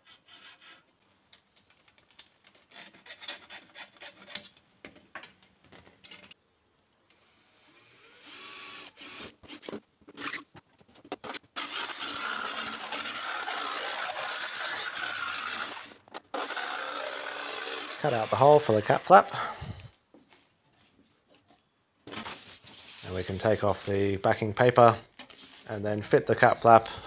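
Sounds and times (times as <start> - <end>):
hacksaw rasping through plastic: 2.5 - 4.6, 8.9 - 19.0
cordless drill boring into plastic: 7.1 - 10.4, 11.2 - 19.3
jigsaw buzzing: 7.4 - 10.4, 11.2 - 19.1.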